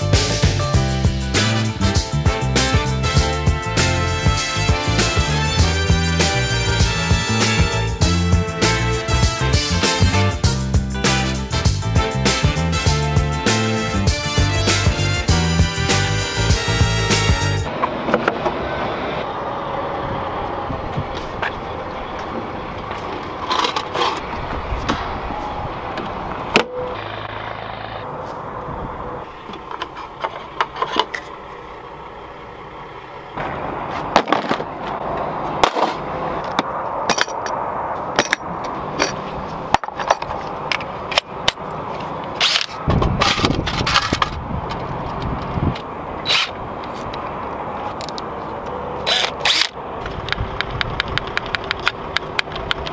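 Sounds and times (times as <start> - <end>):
outdoor background noise: 0.0 - 52.9
hand tools clicking and knocking: 35.6 - 47.3, 47.9 - 52.9.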